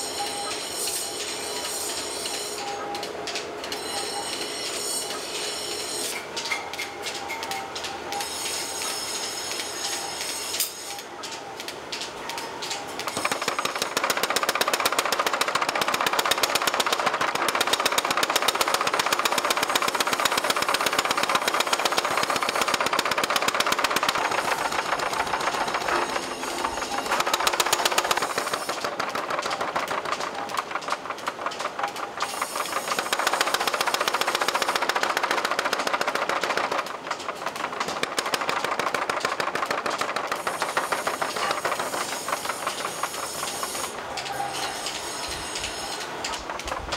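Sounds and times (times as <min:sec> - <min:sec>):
power hammer pounding steel: 0:13.0 - 0:46.9.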